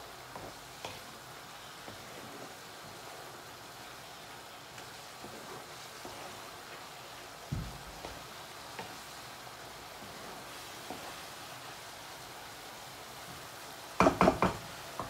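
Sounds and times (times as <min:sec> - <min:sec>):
cabbage sizzling in a pan: 0:00.0 - 0:15.0
spatula knocking against pan: 0:14.0 - 0:15.0.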